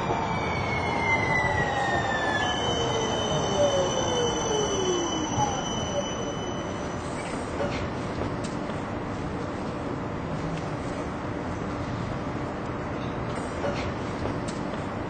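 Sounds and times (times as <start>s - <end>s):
train wheels squealing on rails: 0.0s - 7.8s.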